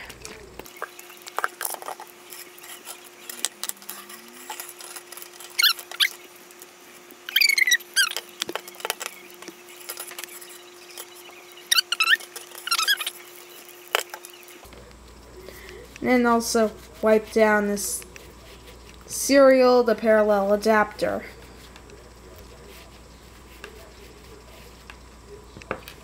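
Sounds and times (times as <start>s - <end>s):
rubber cable squeaking: 0.7s - 6.3s, 7.3s - 14.6s.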